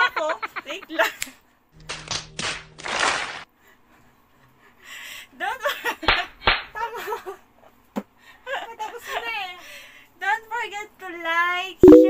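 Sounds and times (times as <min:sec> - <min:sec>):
woman laughing: 0:00.0 - 0:01.2
sharp slaps: 0:06.1 - 0:06.7.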